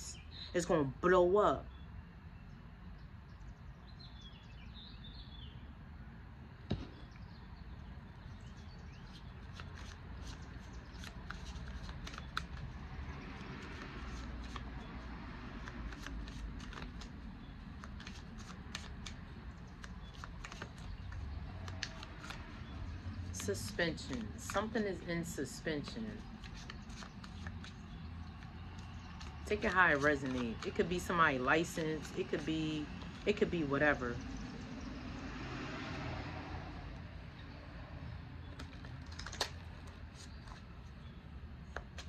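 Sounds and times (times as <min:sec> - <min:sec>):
cards shuffling: 0:09.0 - 0:33.3, 0:38.5 - 0:41.0, 0:41.7 - 0:42.0.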